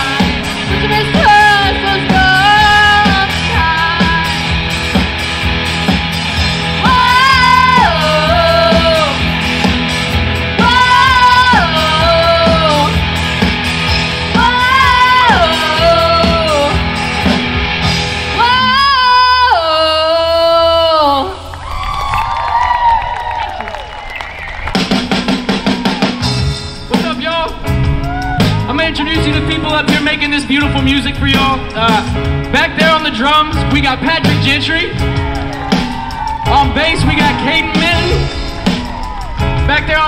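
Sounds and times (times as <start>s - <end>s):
person singing: 0.0s - 4.6s, 6.8s - 9.4s, 10.6s - 13.1s, 14.3s - 16.9s, 18.3s - 21.5s
live rock band playing: 0.0s - 21.0s, 23.9s - 40.0s.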